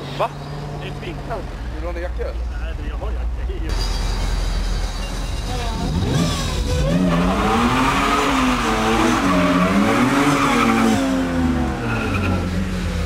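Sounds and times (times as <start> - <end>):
car engine revving: 4.4 - 13.0.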